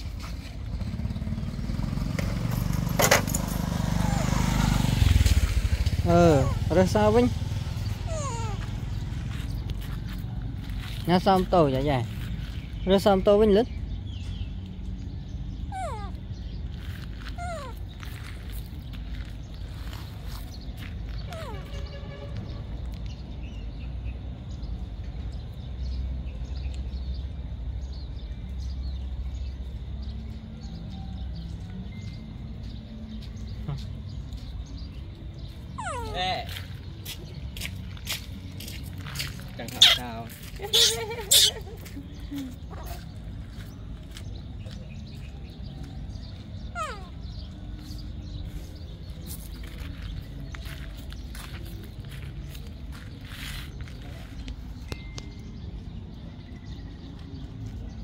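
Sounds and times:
small motorcycle engine running: 0.0s - 9.9s
steady low rumble: 5.0s - 11.1s.

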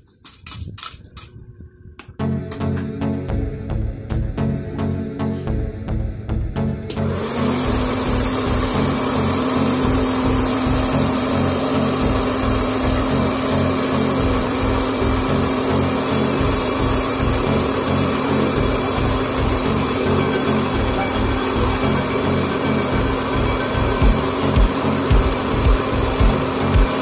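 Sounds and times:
popcorn machine fan whirring: 6.8s - 27.0s.

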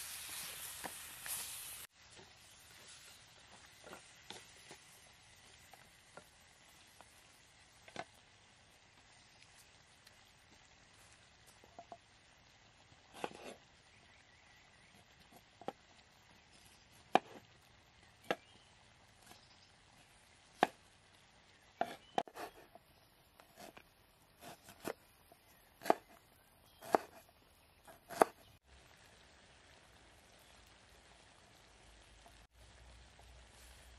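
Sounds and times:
knife chopping on wooden board: 17.1s - 17.4s, 20.6s - 20.8s, 21.8s - 22.6s, 25.8s - 26.2s, 26.8s - 27.2s, 27.9s - 28.4s.

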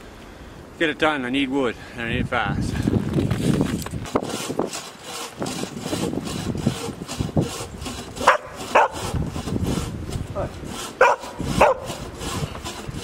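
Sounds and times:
dog barking: 8.2s - 9.0s, 11.0s - 11.9s.

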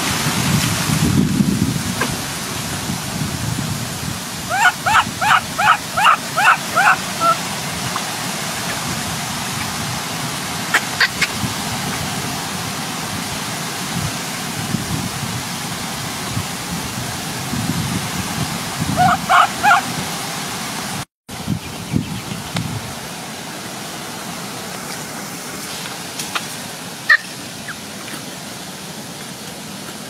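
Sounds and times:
baby monkey squeaking: 4.5s - 7.4s, 19.0s - 19.8s.

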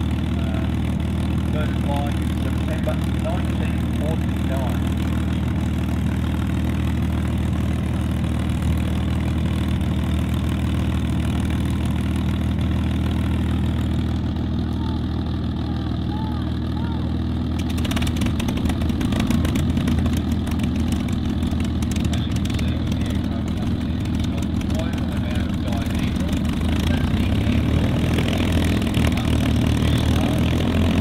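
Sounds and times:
aircraft engine idling: 0.0s - 31.0s
crackling popping engine exhaust: 17.4s - 31.0s.

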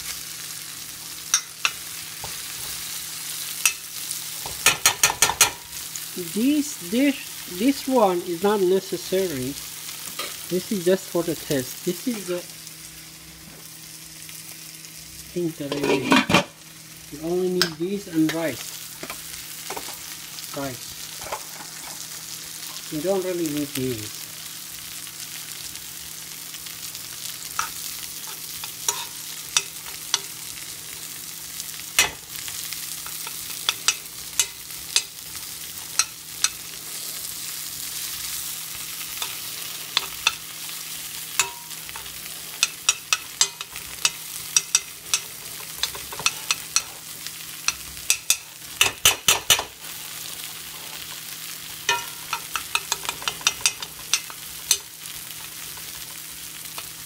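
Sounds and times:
food sizzling in a pan: 0.0s - 57.0s
utensil scraping a pan: 15.7s - 16.5s.

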